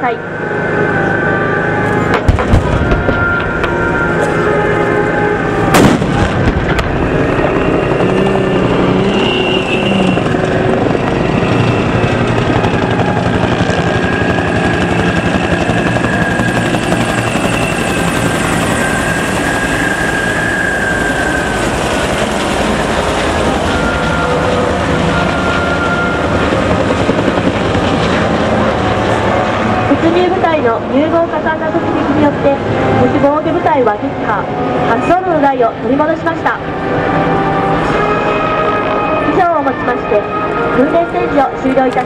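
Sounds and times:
helicopter rotors beating: 0.0 - 42.0
loud gun blast: 2.2 - 3.1, 5.7 - 7.0.

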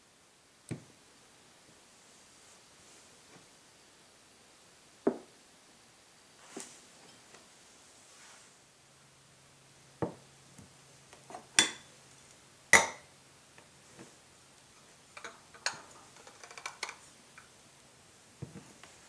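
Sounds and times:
glass and saucer knocking: 12.8 - 13.0.

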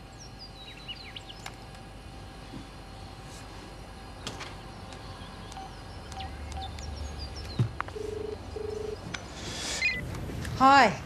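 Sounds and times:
faint bird chirps: 8.5 - 10.0.

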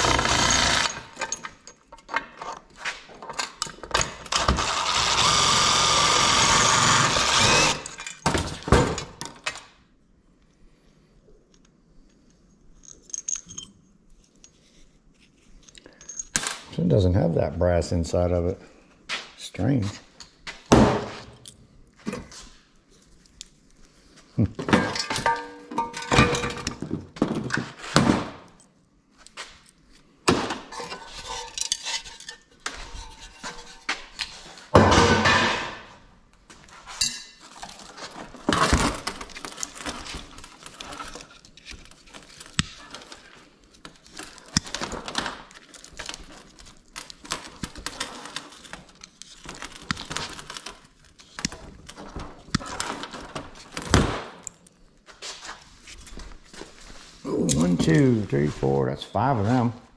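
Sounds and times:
scrap metal clinking: 30.7 - 35.3.

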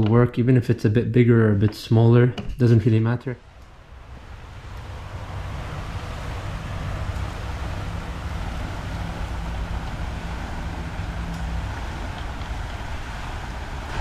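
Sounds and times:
steady rushing noise: 3.4 - 14.0
low drone: 3.5 - 14.0.

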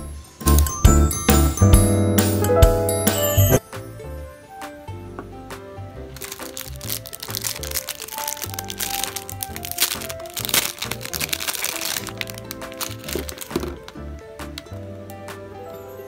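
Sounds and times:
background music: 0.0 - 16.0
plastic packaging crinkling: 6.2 - 14.7.

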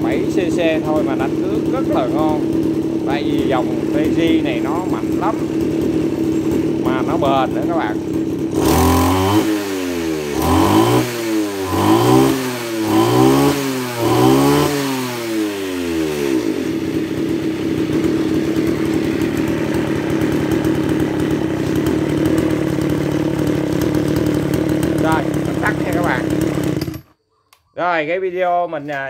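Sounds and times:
brush cutter engine revving: 0.0 - 27.1.

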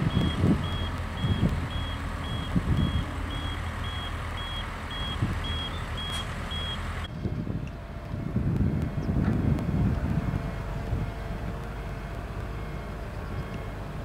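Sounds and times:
reversing alarm beeping: 0.0 - 7.1, 10.2 - 14.0
low rumble: 0.0 - 14.0.

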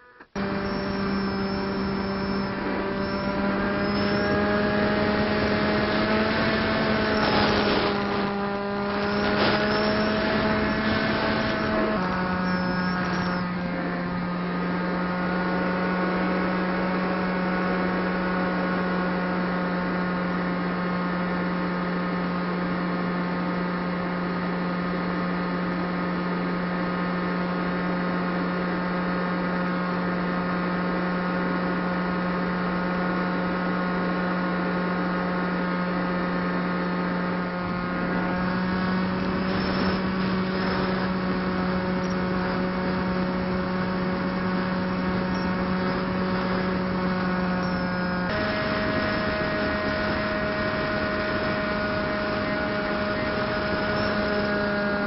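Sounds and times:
electric motor propeller whine: 0.0 - 55.0
wind noise: 1.4 - 13.4, 37.6 - 55.0.

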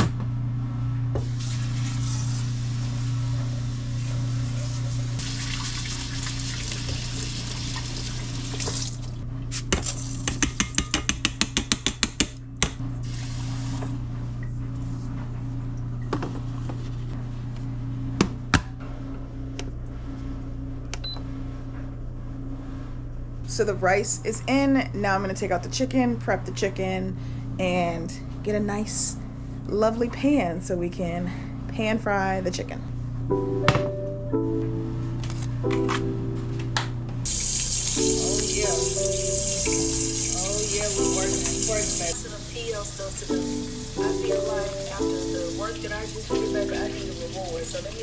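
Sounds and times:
tap water filling pot: 5.2 - 9.0.

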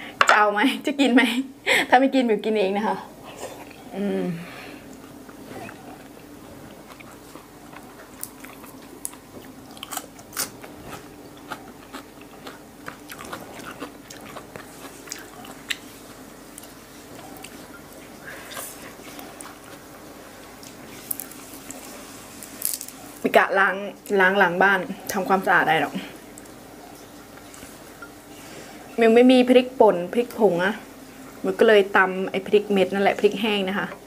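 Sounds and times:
mouth chewing wet clicks: 4.9 - 19.8.

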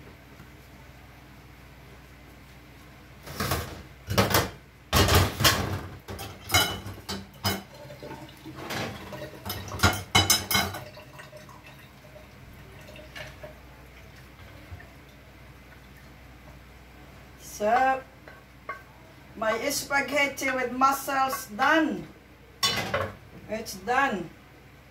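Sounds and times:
kitchenware clattering: 3.3 - 11.4, 22.6 - 23.2.

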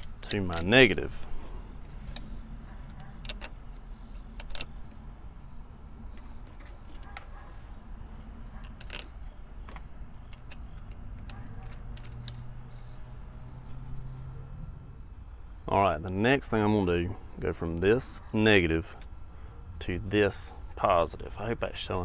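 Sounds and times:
metal battery terminals clinking: 0.0 - 4.8, 8.6 - 13.8.

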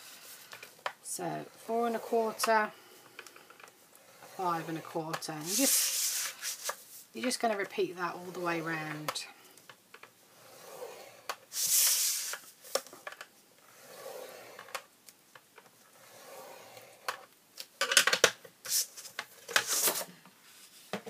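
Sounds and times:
scoring tool scratching cardstock: 4.0 - 6.8, 10.3 - 12.4, 13.7 - 14.7, 16.0 - 17.1
cardstock sliding across board: 4.1 - 7.0, 10.4 - 12.8.

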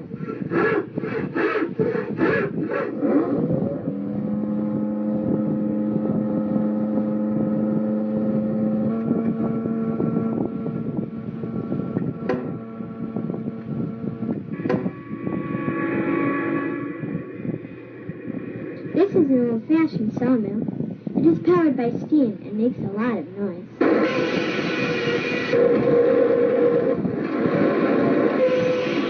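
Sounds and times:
engine droning: 0.0 - 20.2
rhythmic pulsing: 0.0 - 29.0.

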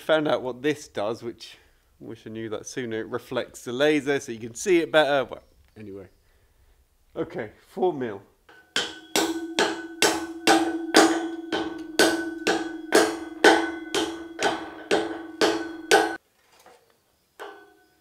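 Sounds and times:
hammer tapping on ringing steel beam: 8.5 - 16.2, 17.4 - 17.8.

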